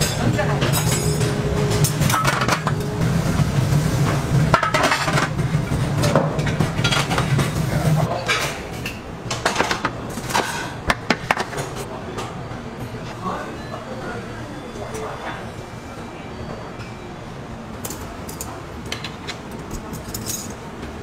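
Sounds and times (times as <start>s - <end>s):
low hum: 0.3s - 8.1s.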